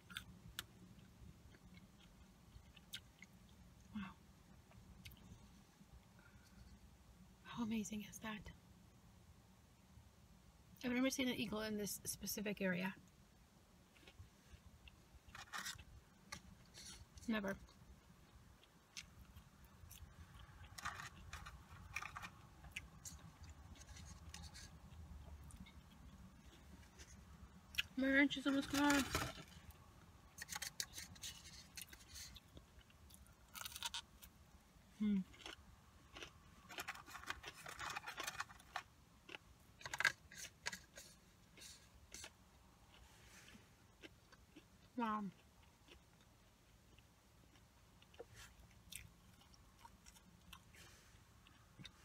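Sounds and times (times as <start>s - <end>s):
person chewing: 0.0s - 3.6s, 4.7s - 5.6s, 13.9s - 27.9s, 30.3s - 34.3s, 35.0s - 52.0s
scratchy clicks of food handling: 18.6s - 29.7s, 30.4s - 34.1s, 35.3s - 44.7s.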